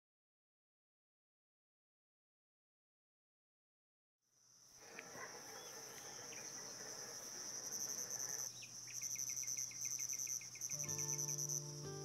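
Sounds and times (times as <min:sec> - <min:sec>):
crickets chirping: 0:04.3 - 0:12.0.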